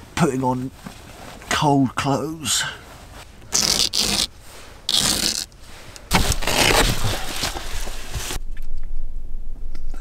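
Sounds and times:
fabric rustling and scraping: 0:02.8 - 0:08.4.

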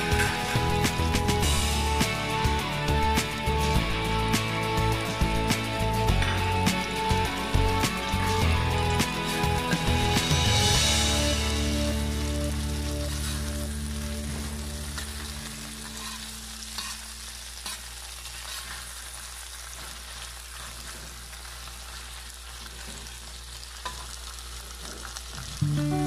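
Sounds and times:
food sizzling in a wok: 0:00.0 - 0:26.0
metal spatula scraping a pan: 0:14.4 - 0:19.0.

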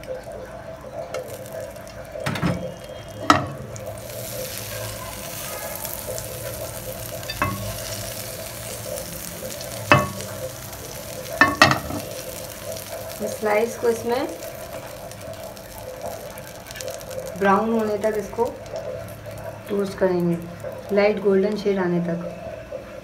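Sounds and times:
butter sizzling in frying pan: 0:00.0 - 0:21.9
pan knocking: 0:03.2 - 0:03.7, 0:07.2 - 0:08.1, 0:09.9 - 0:10.5, 0:11.4 - 0:12.1.

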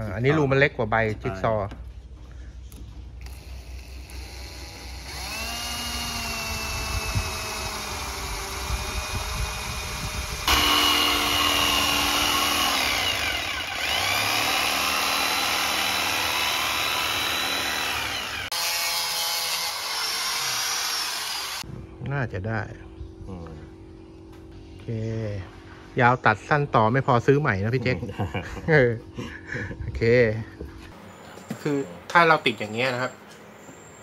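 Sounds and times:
power tool motor whine: 0:03.2 - 0:21.6.

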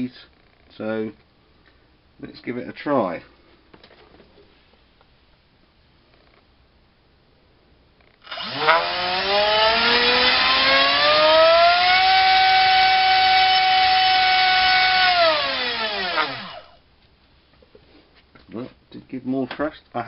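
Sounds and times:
rc motor whine: 0:08.2 - 0:16.8.

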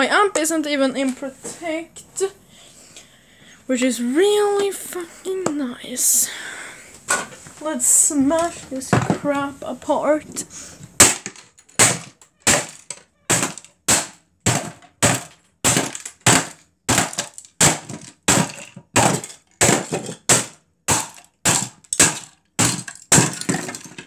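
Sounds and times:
hammer cracking plastic casing: 0:11.0 - 0:24.0.

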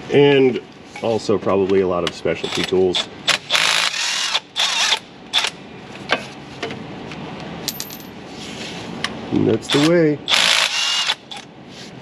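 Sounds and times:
electric ratchet running: 0:03.3 - 0:05.5, 0:09.7 - 0:11.4.

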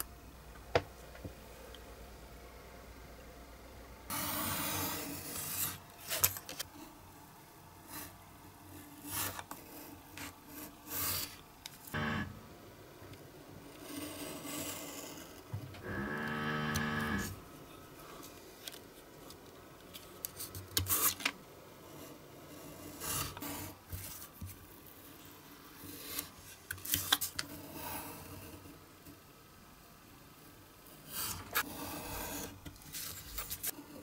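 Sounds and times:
steady humming tone: 0:11.8 - 0:13.7, 0:15.5 - 0:18.2.

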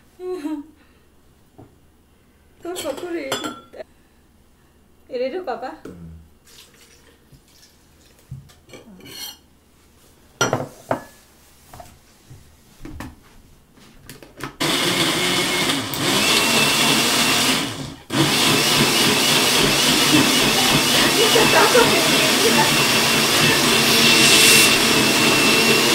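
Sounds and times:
blender whirring: 0:14.6 - 0:25.9.

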